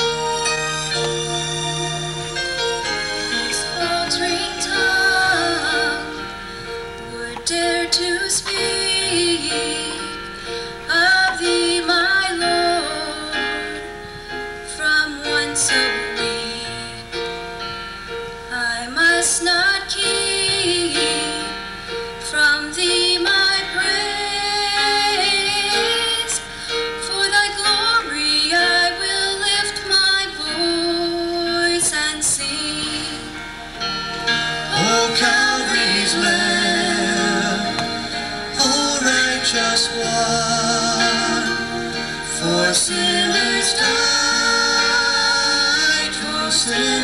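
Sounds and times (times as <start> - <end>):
church choir singing: 0.0 - 13.9, 31.7 - 47.0.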